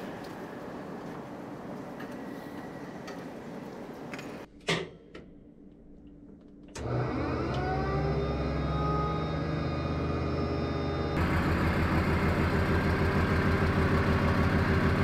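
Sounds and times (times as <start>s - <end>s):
tank machinery hum and whine: 5.7s - 15.0s.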